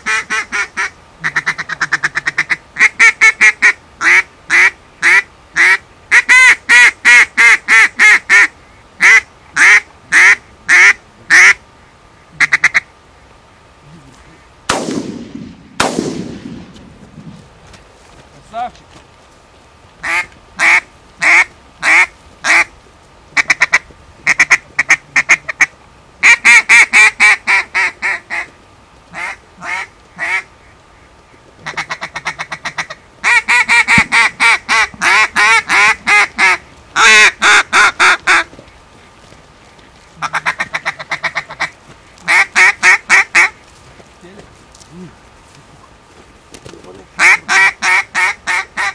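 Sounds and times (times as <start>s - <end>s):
duck call quacking: 0.0s - 11.6s, 12.4s - 12.9s, 20.0s - 22.7s, 23.4s - 28.5s, 29.1s - 30.5s, 31.6s - 38.5s, 40.2s - 43.6s, 47.2s - 48.9s.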